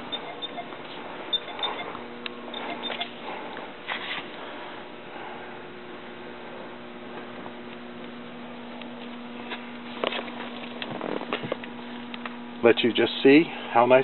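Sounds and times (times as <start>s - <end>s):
steady hum: 0.0s - 14.0s.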